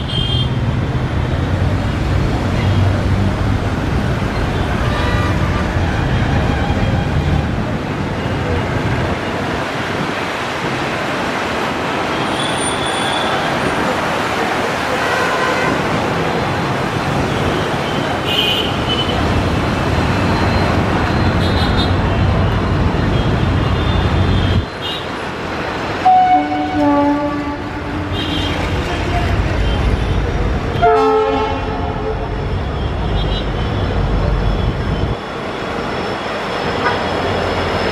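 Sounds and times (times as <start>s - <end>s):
train horn: 26.0s - 28.4s, 30.8s - 32.2s.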